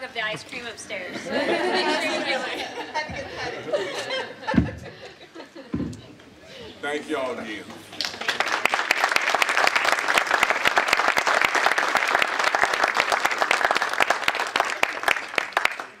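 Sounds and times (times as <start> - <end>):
audience applauding: 8.0 - 16.0.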